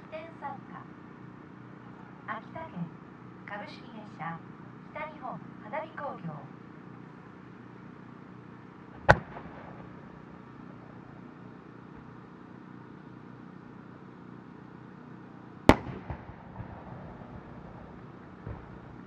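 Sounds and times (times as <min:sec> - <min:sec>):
mortar launch thump: 0:09.0 - 0:09.8
firework shell bursting bang: 0:09.0 - 0:10.3.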